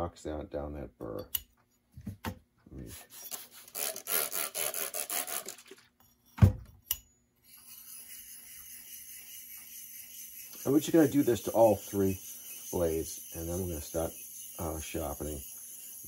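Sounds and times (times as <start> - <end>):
blade scraping on whetstone: 7.4 - 16.0.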